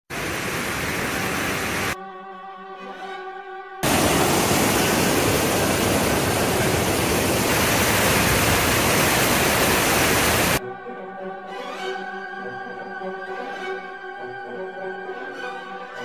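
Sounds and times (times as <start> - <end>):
rushing creek water: 0.1 - 2.0, 3.8 - 10.6.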